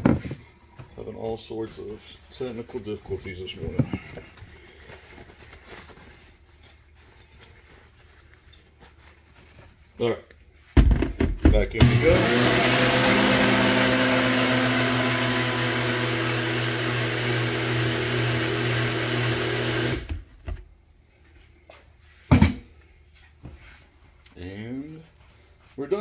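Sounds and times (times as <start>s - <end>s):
blender motor running: 11.8s - 20.2s.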